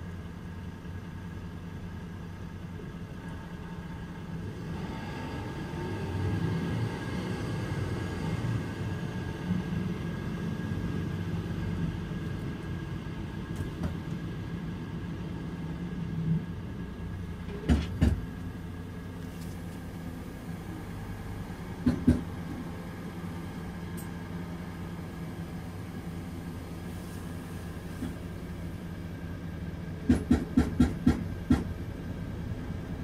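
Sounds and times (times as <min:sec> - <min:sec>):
diesel bus idling: 0:00.0 - 0:33.0
sharp knocks: 0:21.8 - 0:22.2, 0:30.0 - 0:31.7.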